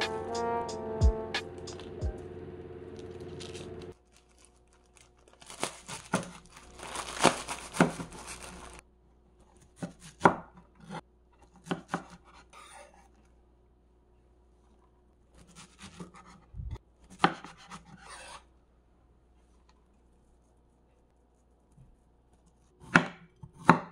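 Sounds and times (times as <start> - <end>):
background music: 0.0 - 3.8
knife cutting through plastic wrapper: 3.0 - 8.8
plastic wrapper crinkling: 3.0 - 8.8
knife chopping on wooden board: 11.6 - 12.4, 17.1 - 18.3, 22.8 - 23.9.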